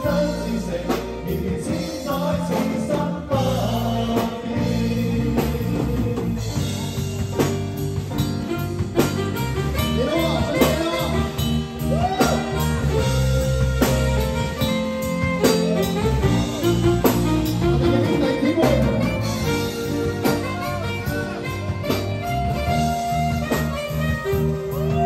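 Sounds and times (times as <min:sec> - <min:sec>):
people singing into microphones: 0:00.0 - 0:07.0
live amplified pop song: 0:00.0 - 0:25.0.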